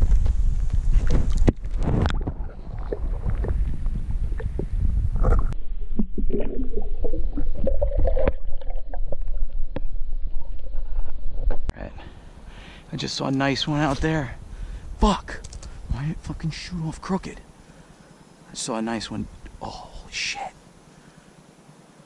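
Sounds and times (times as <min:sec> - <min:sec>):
water sloshing and gurgling: 0:00.9 - 0:11.7
underwater bubbling: 0:01.0 - 0:11.7.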